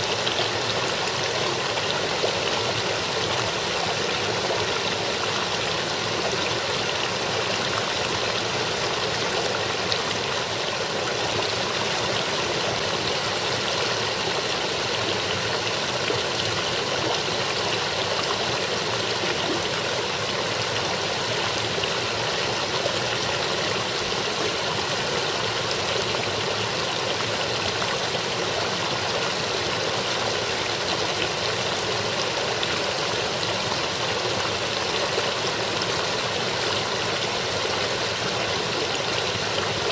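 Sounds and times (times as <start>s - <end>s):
brook babbling over rocks: 0.0s - 39.9s.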